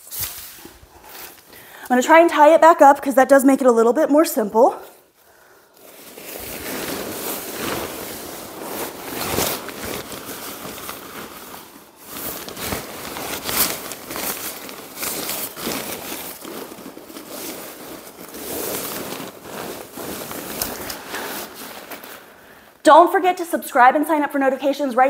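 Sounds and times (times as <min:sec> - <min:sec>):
tent fabric rustling and crinkling: 0:05.0 - 0:22.6.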